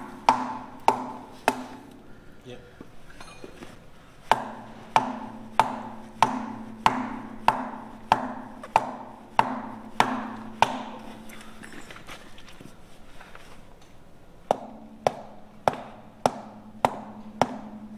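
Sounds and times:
sledgehammer striking wood on metal: 0:00.0 - 0:02.0, 0:04.3 - 0:11.2, 0:14.5 - 0:17.9.

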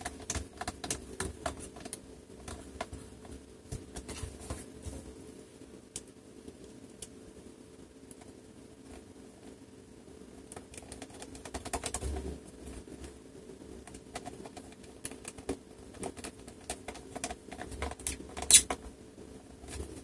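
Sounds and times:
screwdriver clicks and scrapes: 0:18.0 - 0:18.8.

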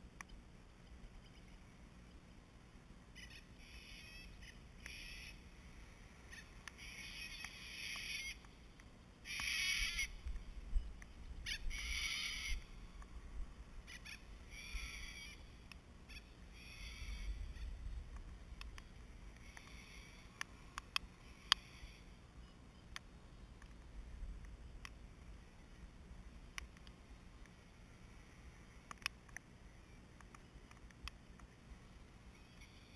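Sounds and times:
sharp ticks: 0:03.2 - 0:05.4, 0:06.3 - 0:13.1, 0:13.9 - 0:25.0, 0:28.8 - 0:29.5, 0:30.1 - 0:31.6.

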